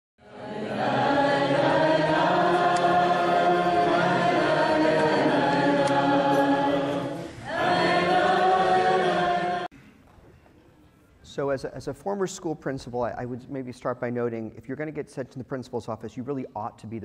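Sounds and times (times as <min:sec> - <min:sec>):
choir singing held chords: 0:00.2 - 0:09.7.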